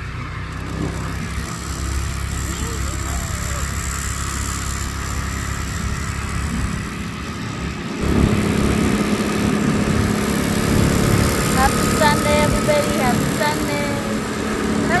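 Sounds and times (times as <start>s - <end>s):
scooter engine running: 0.0s - 15.0s
wind rumbling on microphone: 5.4s - 13.4s.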